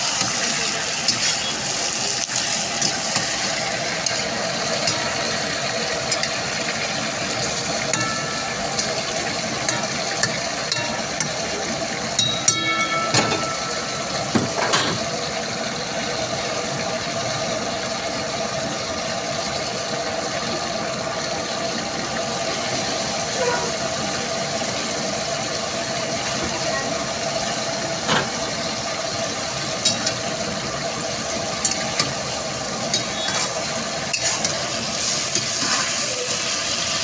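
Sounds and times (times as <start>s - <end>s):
chicken sizzling in hot oil: 0.0s - 37.0s
brief pitched tone: 12.3s - 14.3s.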